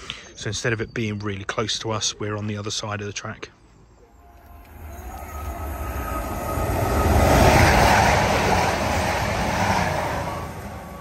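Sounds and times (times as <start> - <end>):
train passing at speed: 4.1 - 11.0.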